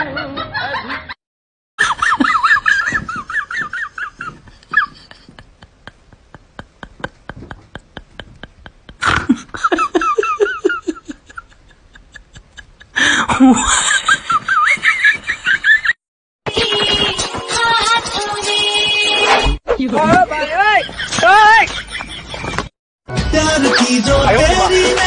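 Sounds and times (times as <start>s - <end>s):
high-pitched rapid giggling: 1.8s - 15.8s.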